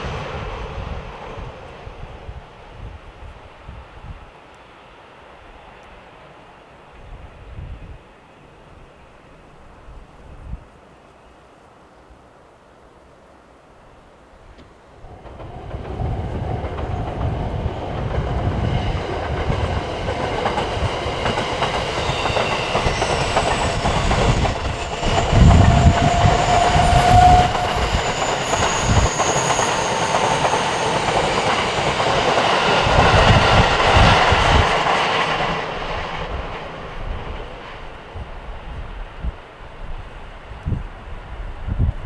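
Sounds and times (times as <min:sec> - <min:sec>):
train wheels clattering: 0:15.1 - 0:37.9.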